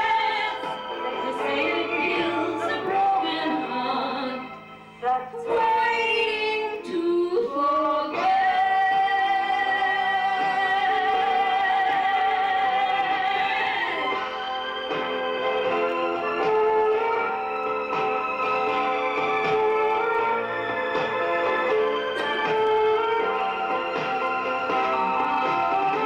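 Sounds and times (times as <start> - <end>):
woman singing a slow ballad: 0.0 - 14.2
instrumental accompaniment: 0.0 - 26.0.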